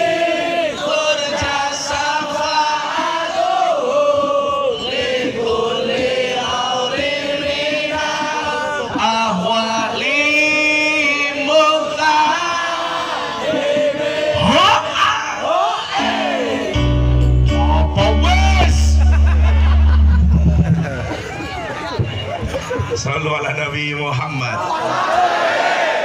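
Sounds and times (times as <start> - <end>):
voices singing along: 0.0 - 22.0, 24.6 - 26.0
man chanting over loudspeakers: 0.8 - 3.1, 8.2 - 12.9, 14.3 - 15.6.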